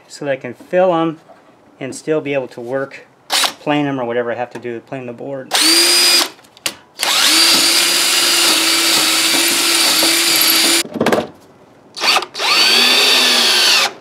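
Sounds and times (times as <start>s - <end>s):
cordless drill boring into wood: 3.3s - 3.6s, 5.5s - 6.3s, 7.0s - 10.8s, 12.0s - 14.0s.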